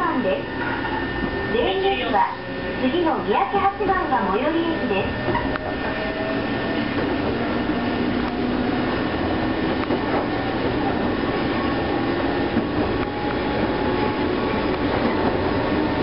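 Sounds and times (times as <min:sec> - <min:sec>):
low train whine: 0:00.0 - 0:16.0
train running on track: 0:00.0 - 0:16.0.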